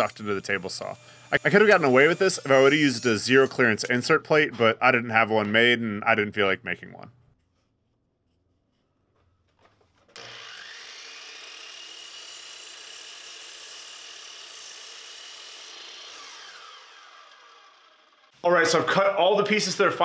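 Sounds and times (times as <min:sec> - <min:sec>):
power saw motor whine: 0:10.1 - 0:18.4.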